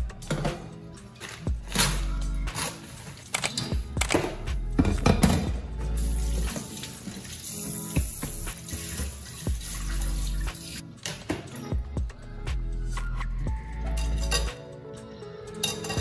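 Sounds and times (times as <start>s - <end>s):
tap water running into metal sink: 6.0s - 10.8s.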